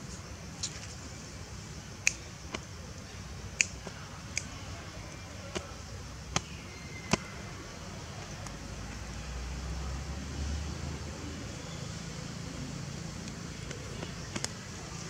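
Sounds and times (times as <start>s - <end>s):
sharp clicks and snaps: 2.0s - 2.7s, 3.5s - 4.7s, 13.2s - 14.8s.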